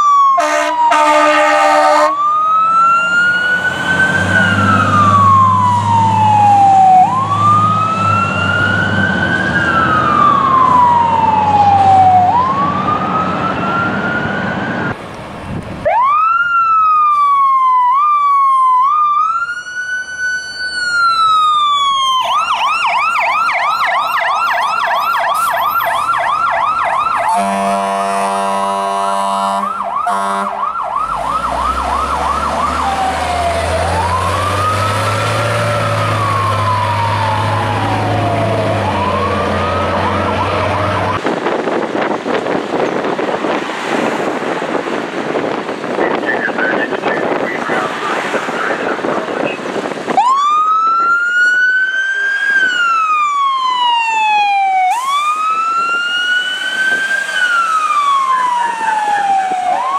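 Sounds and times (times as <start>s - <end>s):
fire truck sirens: 0.0s - 59.9s
air horn blasts: 0.4s - 2.2s, 27.2s - 30.6s.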